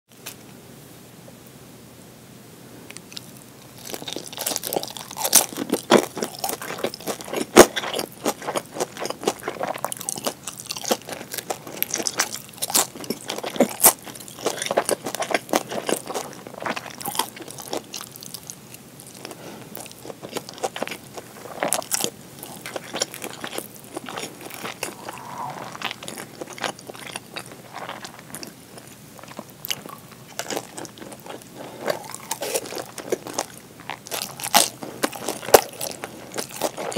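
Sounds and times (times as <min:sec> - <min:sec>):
crunchy chewing: 0:02.9 - 0:36.9
wet mouth sounds: 0:24.0 - 0:27.6.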